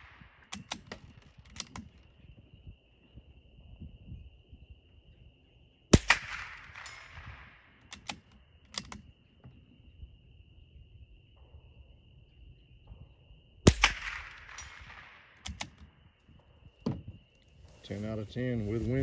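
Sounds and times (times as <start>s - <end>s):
rifle bolt clicks: 0.4s - 1.9s, 7.9s - 9.1s, 15.4s - 15.8s
rifle shot with echo: 5.9s - 9.0s, 13.6s - 16.0s.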